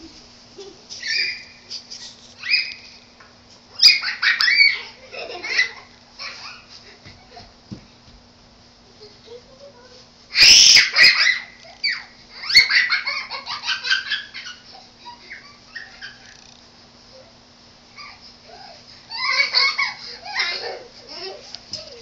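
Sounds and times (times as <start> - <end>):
children giggling: 0.0 - 2.2, 3.8 - 7.6, 10.4 - 16.4, 18.0 - 22.0
children shrieking: 1.0 - 1.6, 3.8 - 5.1, 10.3 - 13.2.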